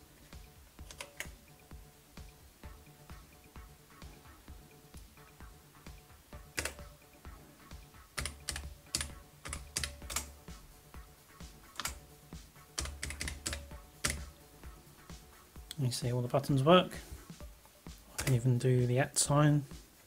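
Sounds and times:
keyboard keys clicking: 0.8s - 1.4s, 6.5s - 6.9s, 8.2s - 10.4s, 11.7s - 12.0s, 12.8s - 14.3s, 18.2s - 18.4s.

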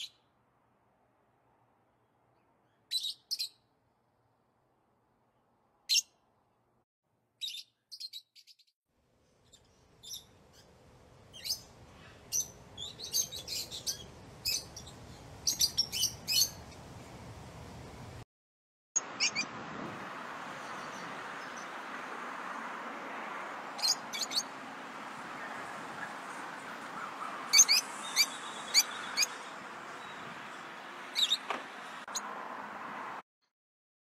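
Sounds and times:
lovebirds chirping: 2.4s - 3.7s, 5.9s - 6.2s, 7.4s - 17.1s, 19.0s - 19.6s, 20.4s - 22.2s, 23.7s - 32.3s.

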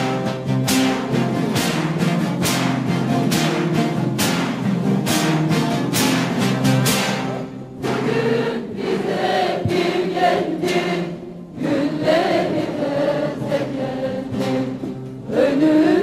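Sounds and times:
ensemble of long-necked lutes: 0.0s - 16.0s
large choir singing slowly: 7.4s - 16.0s.

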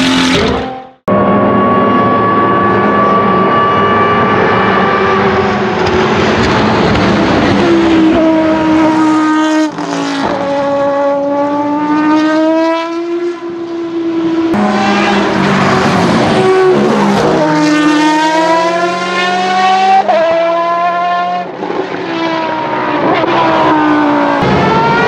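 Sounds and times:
racing car engine screaming: 22.5s - 25.0s.

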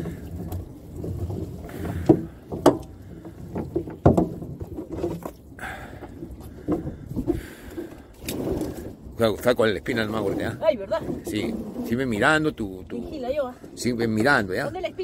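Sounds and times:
floats knocking against hull: 0.0s - 5.4s, 6.1s - 8.8s
wet net being hauled: 0.0s - 12.8s.

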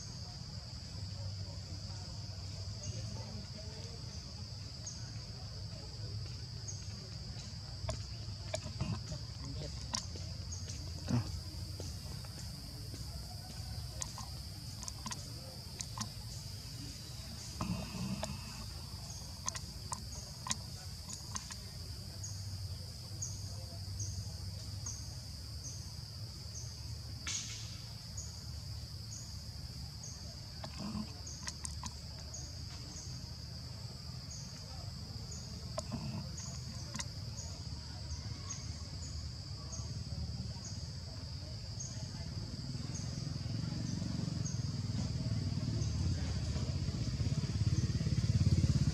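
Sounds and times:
insects droning: 0.0s - 48.9s
faint clicks: 13.5s - 16.4s, 17.5s - 21.8s, 30.6s - 32.8s, 35.8s - 37.2s.

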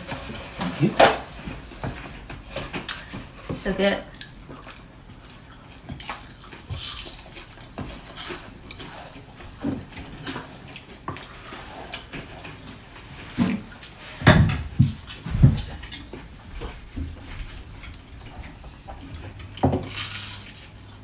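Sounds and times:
chewing crispy food: 2.3s - 14.1s, 17.2s - 21.0s.

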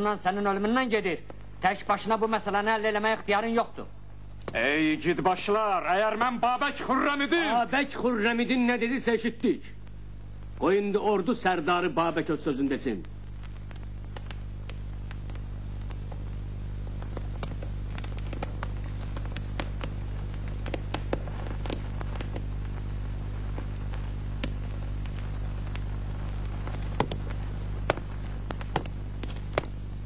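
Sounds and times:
low hum: 12.6s - 30.0s
film soundtrack clicks and crackles: 13.0s - 16.4s, 17.0s - 29.8s.

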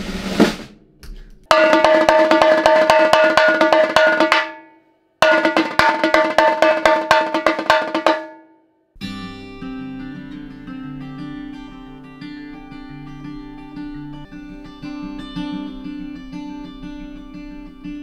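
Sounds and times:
drum struck with sticks: 0.0s - 8.5s.

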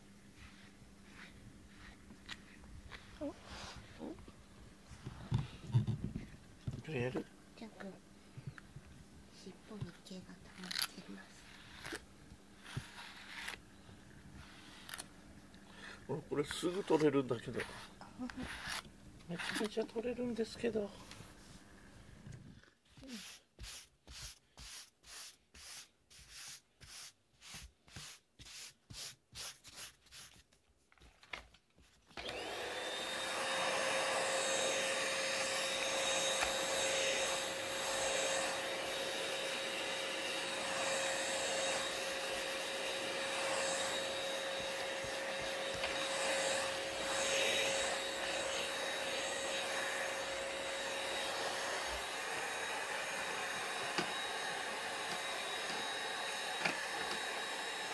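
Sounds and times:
brisk brush strokes: 0.2s - 4.2s, 9.7s - 13.6s, 14.2s - 15.0s, 15.7s - 18.8s, 22.9s - 30.4s, 38.2s - 53.3s
vacuum cleaner whining: 32.2s - 57.9s.

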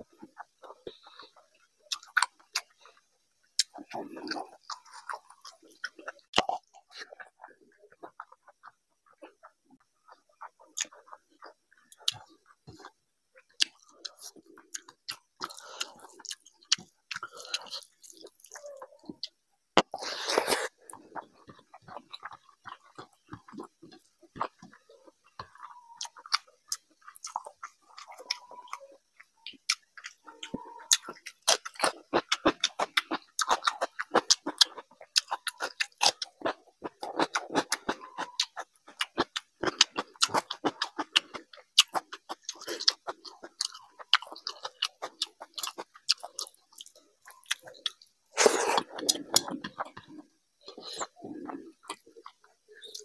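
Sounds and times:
wet chewing and lip-smacking: 0.0s - 53.0s.

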